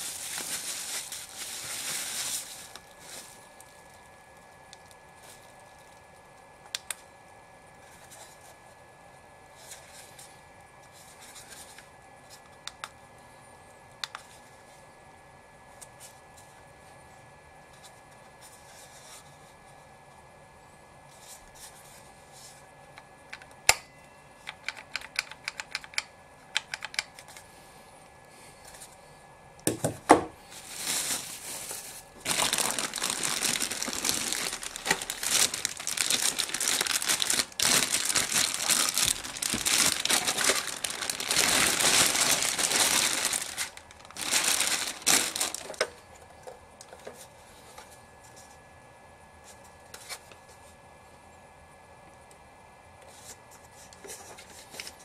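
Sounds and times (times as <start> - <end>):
plastic wrapping crinkling: 0.0 - 6.4, 30.5 - 46.0.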